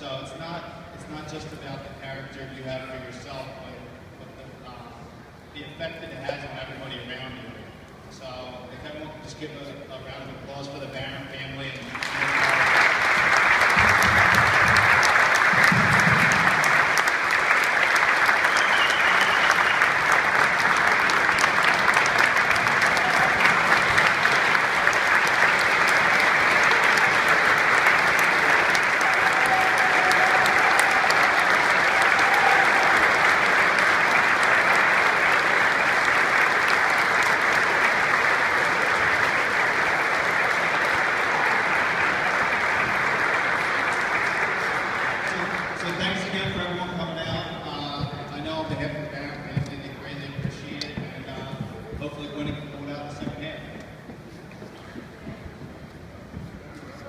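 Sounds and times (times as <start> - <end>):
crowd applauding: 11.8 - 57.0.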